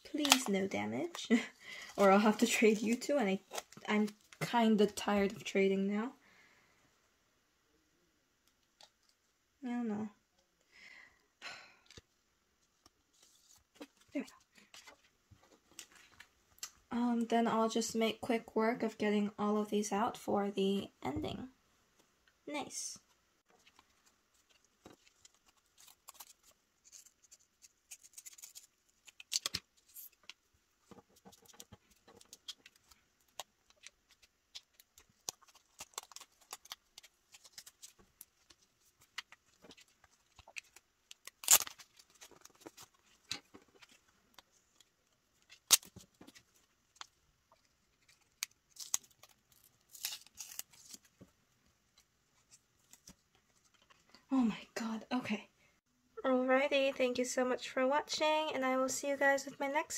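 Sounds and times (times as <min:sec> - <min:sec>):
paper rustling: 0:23.5 - 0:51.3.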